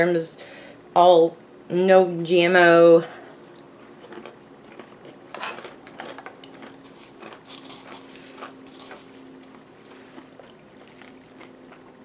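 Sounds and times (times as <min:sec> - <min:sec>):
chewing crunchy food: 0:03.5 - 0:12.0.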